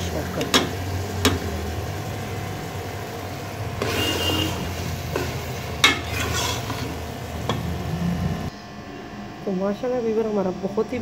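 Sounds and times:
faint sizzle: 0:00.0 - 0:10.8
metal spoon stirring in a pot: 0:03.8 - 0:07.7.

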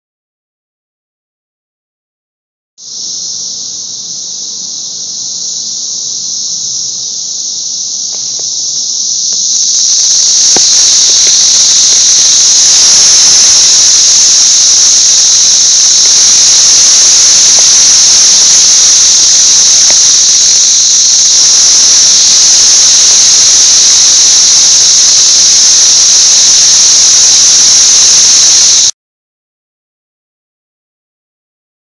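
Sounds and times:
cicadas droning: 0:02.8 - 0:28.9.

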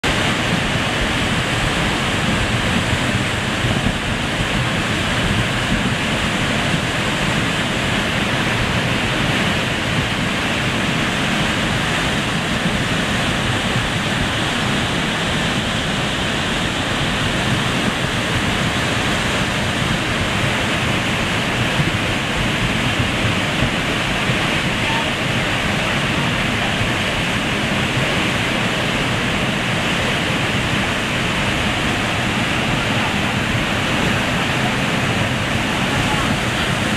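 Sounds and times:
water rushing loudly: 0:00.0 - 0:36.9.

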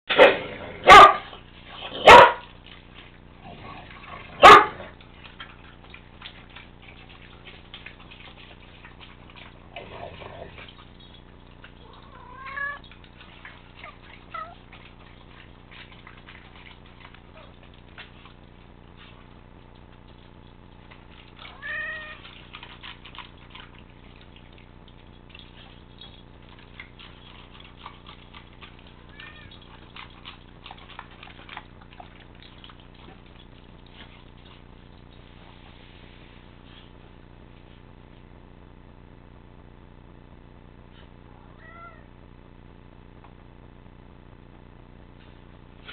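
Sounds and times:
cat meowing: 0:11.8 - 0:12.8, 0:21.5 - 0:22.3, 0:29.0 - 0:29.6, 0:41.3 - 0:42.1
cat crying: 0:11.9 - 0:12.8, 0:21.5 - 0:22.3, 0:29.0 - 0:29.5, 0:41.3 - 0:42.1
kibble clicking in metal bowl: 0:20.9 - 0:33.9.

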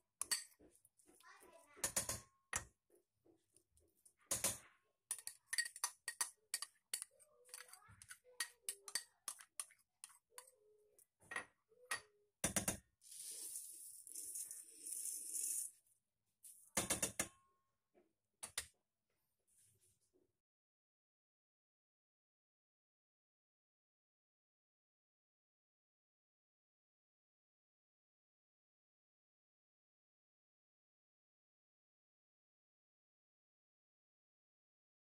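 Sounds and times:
metal spoon scraping steel basin: 0:00.2 - 0:00.6, 0:13.1 - 0:15.8
rice flakes pouring: 0:13.1 - 0:15.8.

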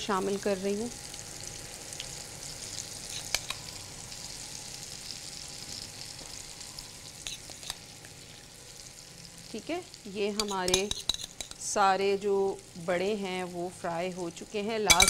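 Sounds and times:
food sizzling in hot oil: 0:00.0 - 0:15.0.

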